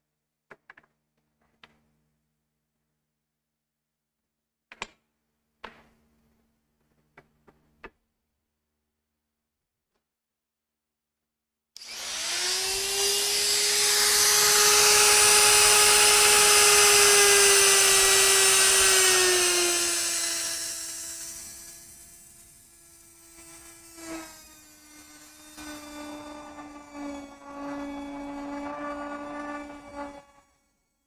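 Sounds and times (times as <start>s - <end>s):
power tool motor whining: 11.8s - 31.0s.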